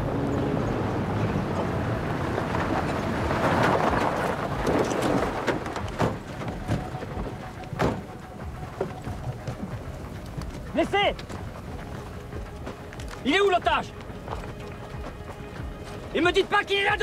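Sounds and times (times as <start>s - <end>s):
truck engines: 0.0s - 17.0s
tyres crunching over gravel: 1.5s - 17.0s.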